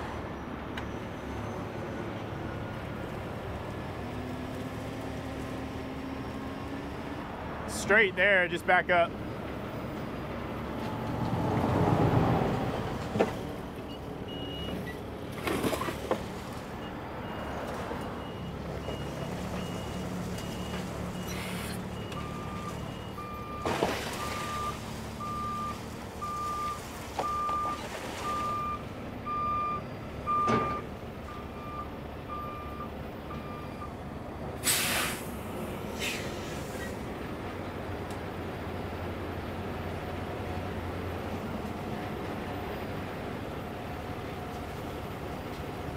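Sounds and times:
truck reverse alarm beeping: 13.8 - 15.1, 16.8 - 34.0
short air hisses: 34.6 - 37.0.

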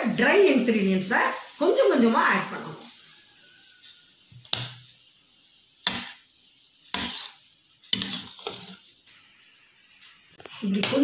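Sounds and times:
metal spoon mixing batter in bowl: 5.8 - 9.3.

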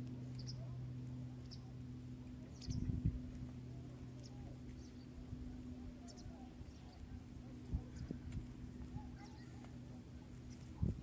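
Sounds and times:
steady low hum: 0.0 - 11.0
faint bird chirps: 3.8 - 11.0.

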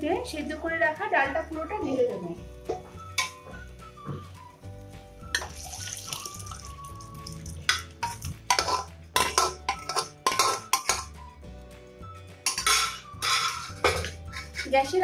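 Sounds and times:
soft background music: 0.0 - 15.0
metal spoon scraping a pot: 7.6 - 11.2, 12.4 - 14.9.

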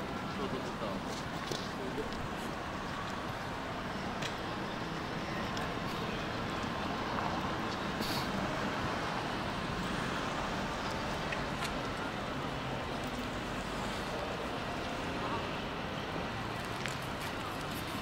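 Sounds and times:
city road traffic: 0.0 - 18.0
brief high hiss: 8.0 - 8.4.

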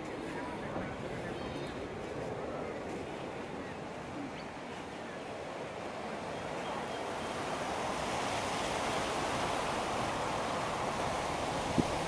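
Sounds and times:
steady rushing wind: 0.0 - 12.0.

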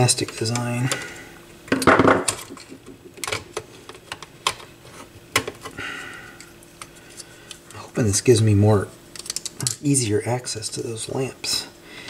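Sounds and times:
clicks of small parts handled: 9.1 - 9.8.

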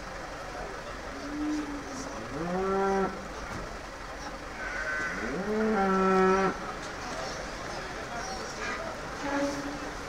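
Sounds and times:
sheep bleating: 4.6 - 5.4.

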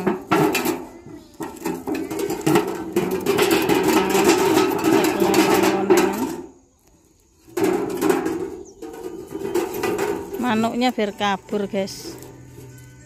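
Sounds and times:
spoons rattling in tin cans: 0.0 - 6.6.

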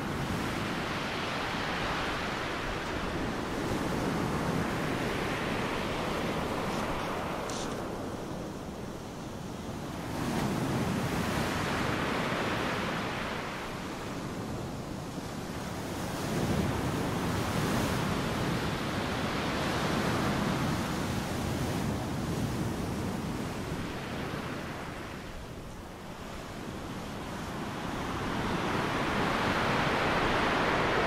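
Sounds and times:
waves breaking: 0.0 - 13.8, 23.4 - 31.0.

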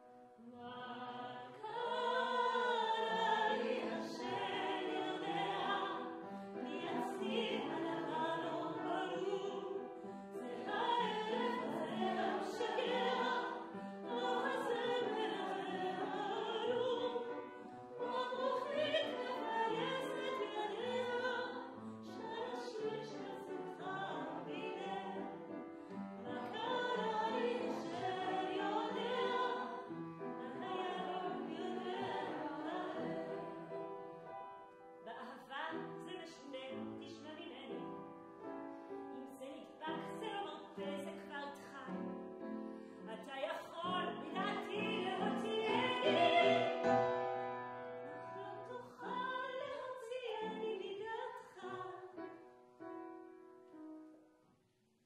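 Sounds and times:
woman singing with vibrato: 0.5 - 6.1, 10.4 - 17.3, 18.0 - 21.6, 43.1 - 46.8, 48.4 - 52.1.

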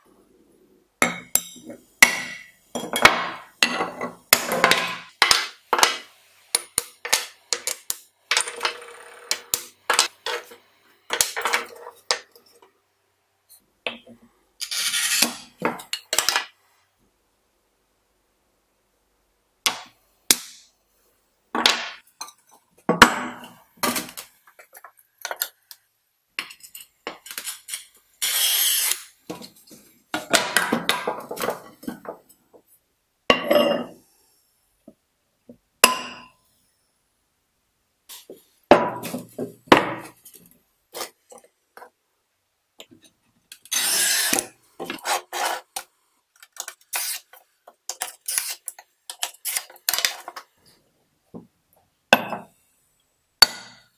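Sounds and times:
glass cutter scoring glass: 14.6 - 15.5, 27.4 - 29.2, 43.6 - 45.8, 46.9 - 47.3, 47.9 - 49.7.

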